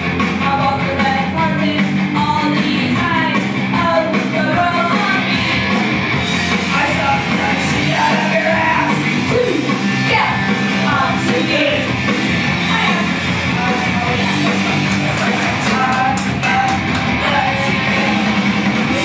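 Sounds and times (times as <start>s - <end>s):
loud amplified music: 0.0s - 19.0s
woman singing into microphone: 0.4s - 5.4s, 6.7s - 9.0s, 15.2s - 18.3s.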